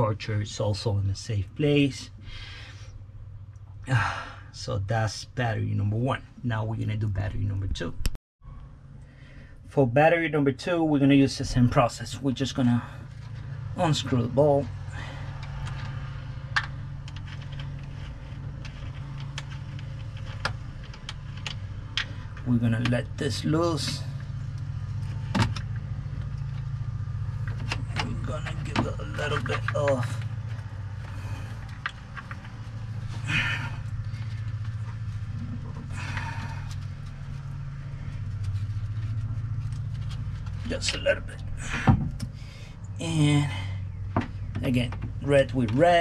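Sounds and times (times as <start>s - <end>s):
steady low hum: 0.0s - 46.0s
rustling scrapes of cables: 14.8s - 22.5s, 29.2s - 40.9s.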